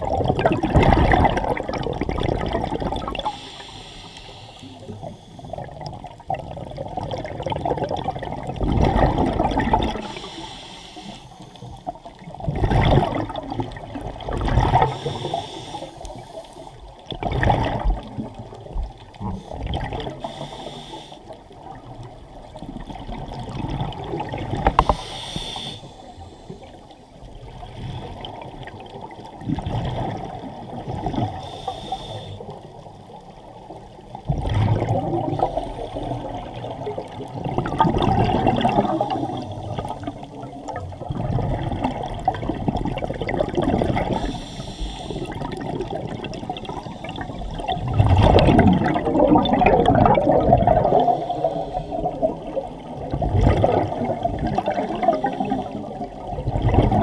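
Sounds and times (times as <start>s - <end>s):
bubbling underwater exhalations: 0.0s - 3.4s, 5.6s - 10.2s, 12.3s - 15.4s, 17.1s - 18.7s, 34.3s - 44.3s, 45.2s - 57.0s
underwater water wash: 0.0s - 57.0s.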